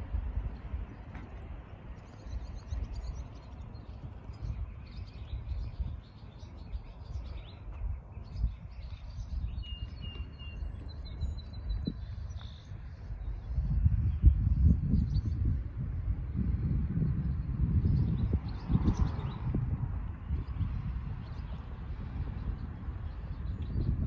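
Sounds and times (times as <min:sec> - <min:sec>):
songbirds chirping and singing: 0:00.1 - 0:24.0
whistled bird notes: 0:08.4 - 0:12.7.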